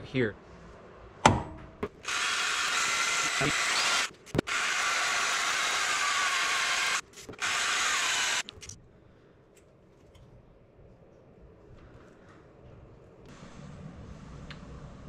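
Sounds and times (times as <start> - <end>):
power drill boring into metal: 2.0 - 8.5.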